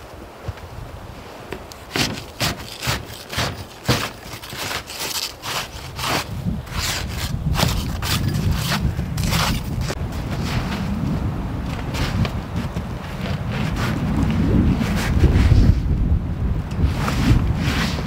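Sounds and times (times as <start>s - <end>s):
wind rumble on microphone: 0.0s - 1.7s, 5.7s - 18.0s
snow shovel scraping snow: 1.9s - 11.0s, 11.8s - 15.9s, 16.8s - 18.0s.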